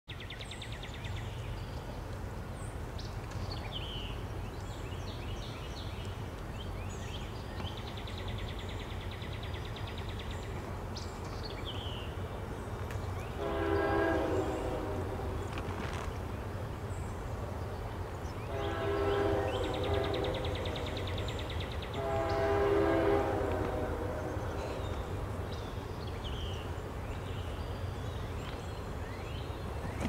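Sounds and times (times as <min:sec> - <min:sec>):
freight train rumble: 0:00.5 - 0:30.0
train horn: 0:13.2 - 0:15.9, 0:18.4 - 0:25.4
birds chirping and trilling: 0:16.4 - 0:23.2.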